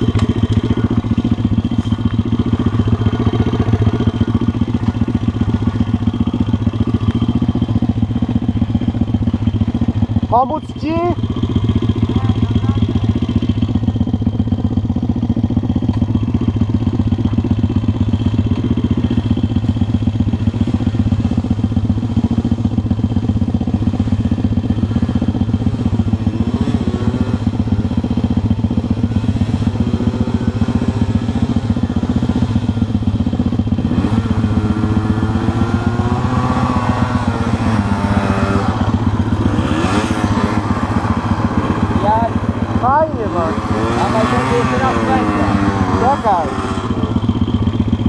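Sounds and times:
motorbike engine idling: 0.0s - 48.0s
motorcycle engine revving: 0.0s - 48.0s.

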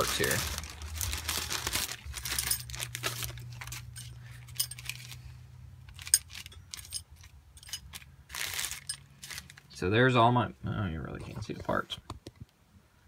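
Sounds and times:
small metal parts clinking: 0.1s - 9.7s.

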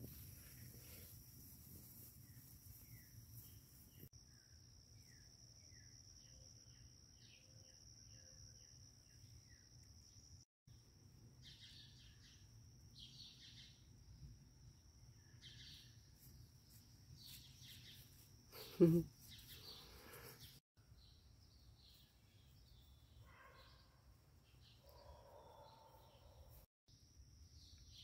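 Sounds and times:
bird chirping: 11.4s - 14.2s, 15.1s - 26.6s.

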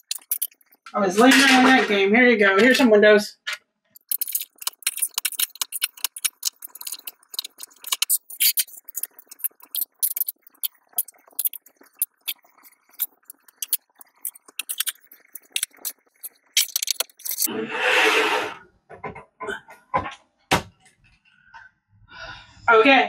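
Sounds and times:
plastic bricks clicking together: 3.5s - 17.5s.

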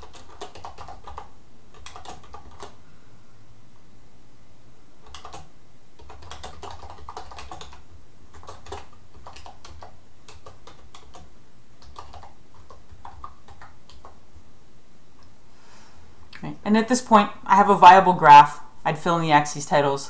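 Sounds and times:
typing on keyboard: 0.0s - 2.8s, 5.0s - 14.2s.

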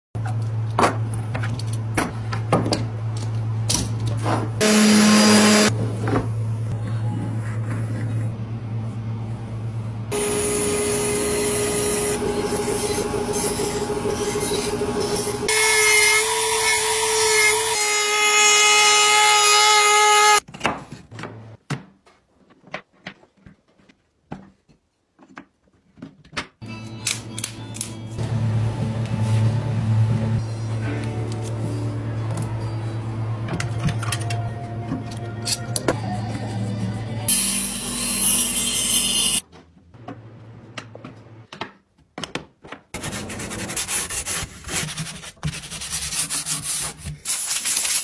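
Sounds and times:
buzzing machine noise: 4.6s - 5.8s, 10.1s - 17.8s.

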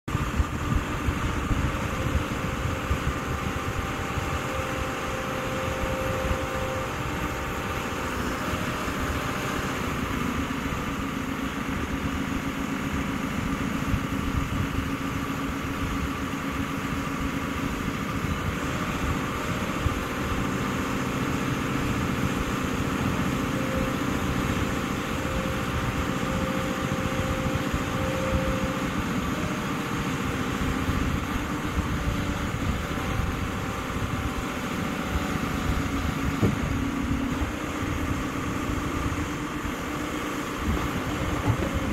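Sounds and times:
excavator diesel engine running: 0.0s - 41.9s
hydraulic whine: 0.1s - 41.9s.

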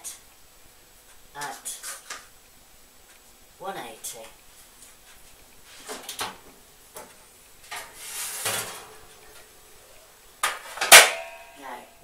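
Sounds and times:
sharp metallic bangs: 10.8s - 11.6s.

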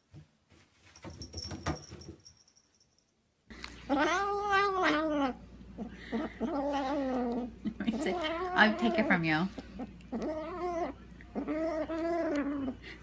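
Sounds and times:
kitten growling: 3.9s - 12.8s.

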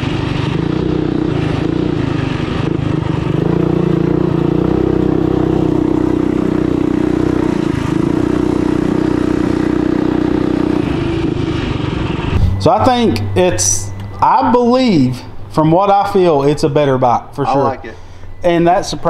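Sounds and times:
mini bike engine revving: 0.0s - 12.3s.

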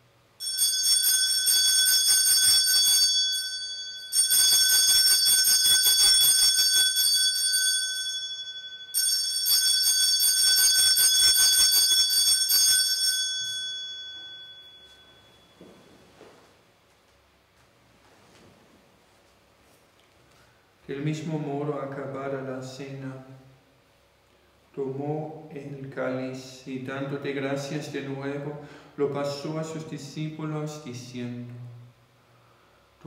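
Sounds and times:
small hand bells ringing: 0.4s - 15.6s.

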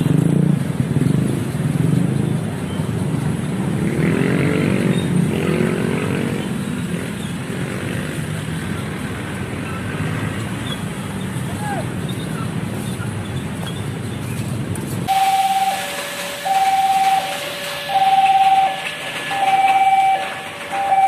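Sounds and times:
motorcycle engine revving: 0.0s - 9.0s
motorcycle engines running: 0.0s - 15.4s.

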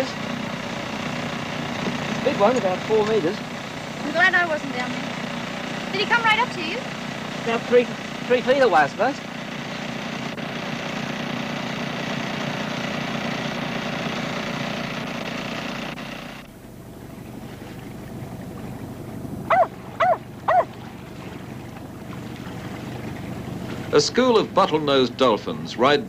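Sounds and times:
boat engine humming: 0.0s - 26.0s
sea water and wind rushing: 17.2s - 24.6s
short pitched calls: 19.5s - 20.8s.

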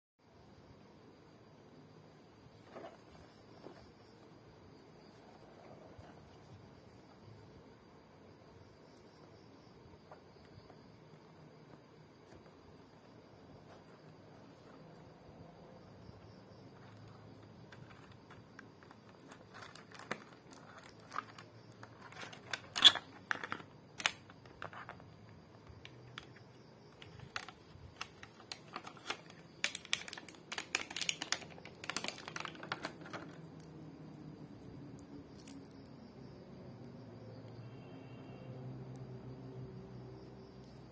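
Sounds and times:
plastic packaging crinkling: 17.7s - 25.0s, 27.0s - 33.4s.

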